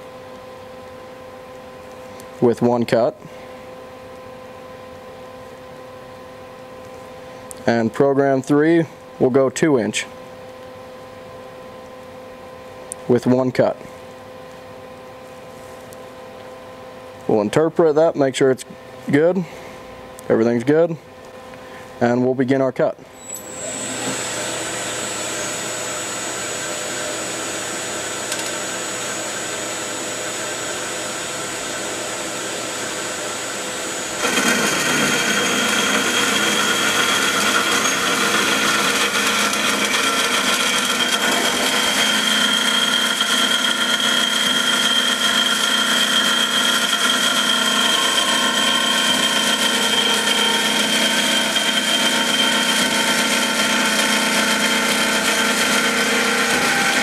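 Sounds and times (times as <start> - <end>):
band saw cutting metal: 33.8 - 57.0.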